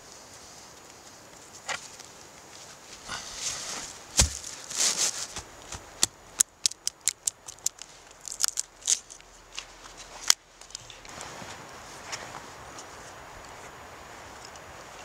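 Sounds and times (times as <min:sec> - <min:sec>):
sticks being handled: 0:00.7 - 0:13.2
knife chopping wood on stump: 0:04.2 - 0:04.5.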